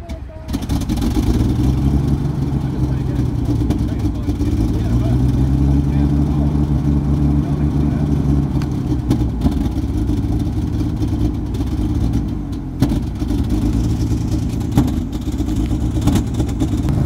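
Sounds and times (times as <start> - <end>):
engine idling: 0.0 - 17.0.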